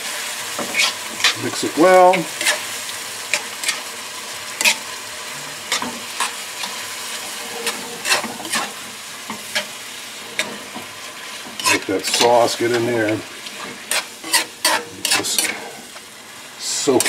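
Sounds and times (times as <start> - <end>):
meat sizzling in a wok: 0.0 - 17.0
metal spoon scraping pan: 0.6 - 3.9, 4.6 - 4.9, 5.5 - 16.0.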